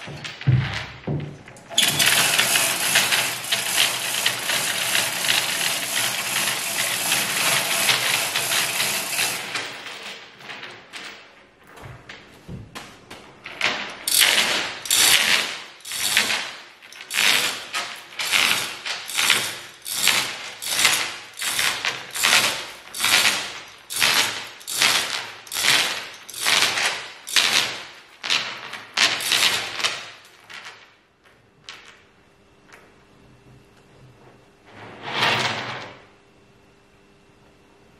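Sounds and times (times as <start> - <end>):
chain hoist rattling: 1.6 - 10.2, 14.0 - 30.1.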